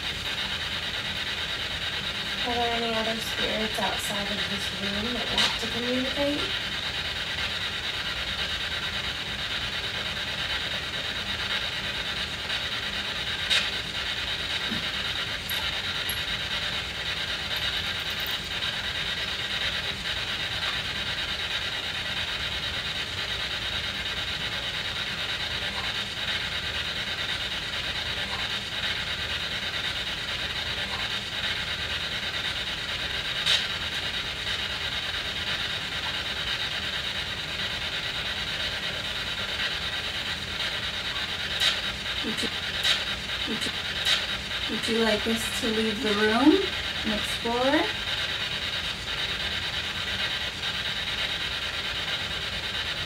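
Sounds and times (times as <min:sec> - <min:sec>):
radio static hissing: 0:12.5 - 0:17.9, 0:40.7 - 0:51.3.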